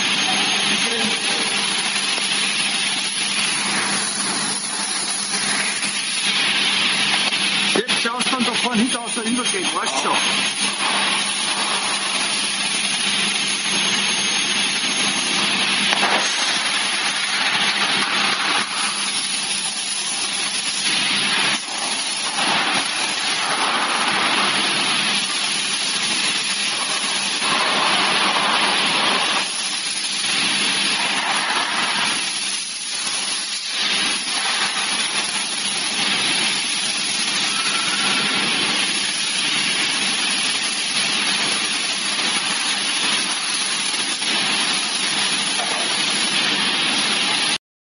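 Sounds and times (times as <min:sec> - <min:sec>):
machine cutting aluminium hiss: 0:00.0 - 0:47.6.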